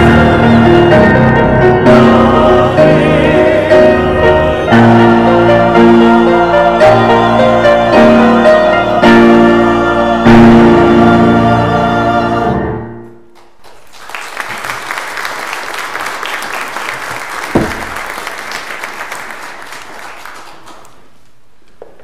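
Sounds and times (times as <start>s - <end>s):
choir and grand piano: 0.0s - 13.4s, 14.4s - 21.1s
congregation applauding: 13.3s - 21.2s.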